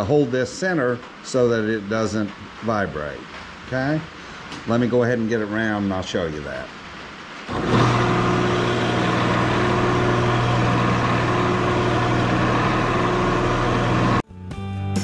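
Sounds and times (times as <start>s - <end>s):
cutter turning wood: 7.5s - 14.2s
lathe humming: 7.5s - 14.2s.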